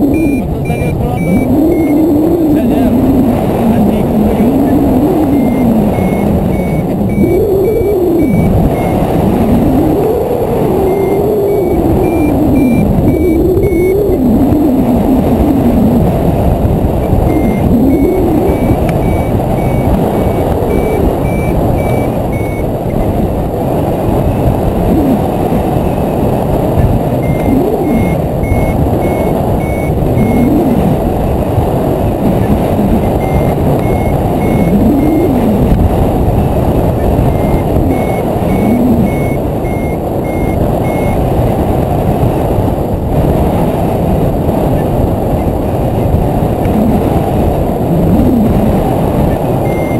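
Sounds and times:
variometer short beeps: 0.0s - 3.0s, 4.0s - 15.8s, 17.1s - 23.3s, 26.8s - 30.9s, 32.2s - 35.7s, 36.3s - 41.2s, 48.6s - 49.9s
loud wind rushing over microphone: 0.0s - 49.9s.

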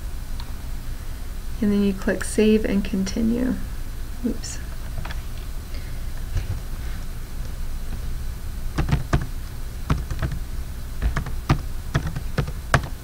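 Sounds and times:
steady low hum: 0.0s - 13.0s
keyboard key clicks: 8.8s - 9.3s.

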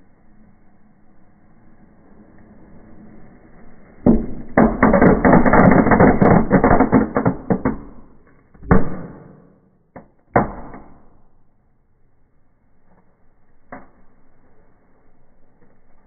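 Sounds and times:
rapid crackling pops: 4.1s - 11.0s.

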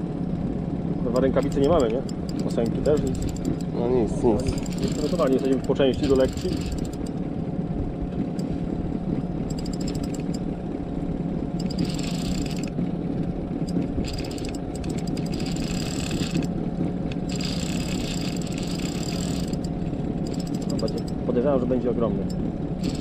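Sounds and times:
outboard motor humming: 0.0s - 23.0s
fishing reel clicking: 1.2s - 3.7s, 4.4s - 7.2s, 9.5s - 10.4s, 11.6s - 12.7s, 13.7s - 16.5s, 17.3s - 21.2s, 22.8s - 23.0s.

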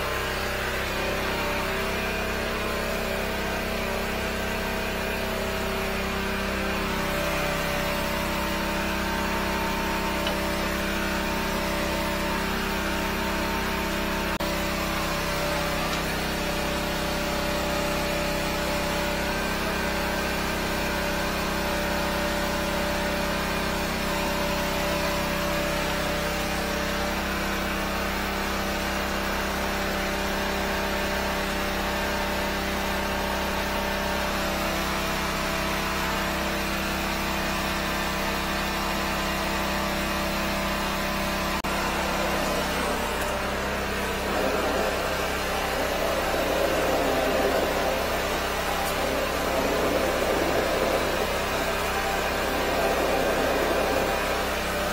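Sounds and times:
engine running under load: 0.0s - 54.9s
loud water rushing: 43.8s - 54.9s.

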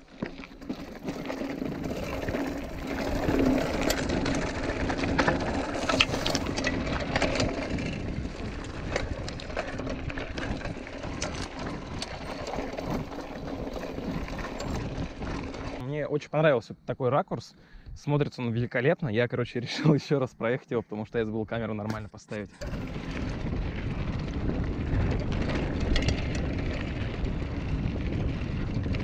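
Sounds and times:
bike clicks and rattles: 0.0s - 15.8s, 21.8s - 29.0s
tyres on gravel: 0.0s - 15.8s, 21.8s - 29.0s.

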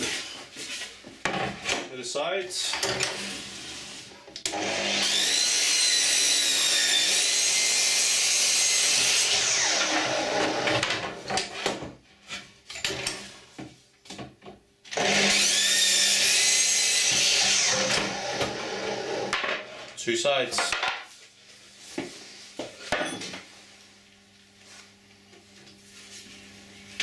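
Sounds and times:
mitre saw cutting board: 2.8s - 11.8s, 15.0s - 19.8s.

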